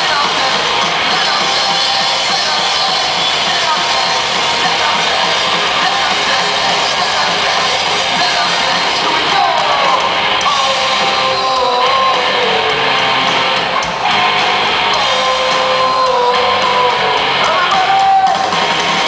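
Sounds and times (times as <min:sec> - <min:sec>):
distorted electric guitars: 0:00.0 - 0:19.0
drums: 0:00.0 - 0:19.0
held melody line: 0:00.0 - 0:19.0.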